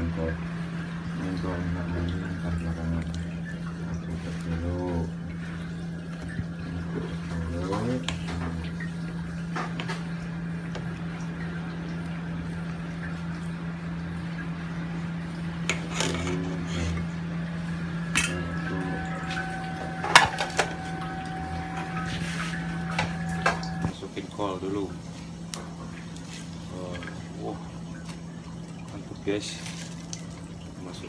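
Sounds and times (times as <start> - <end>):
low hum: 0.0 - 24.1.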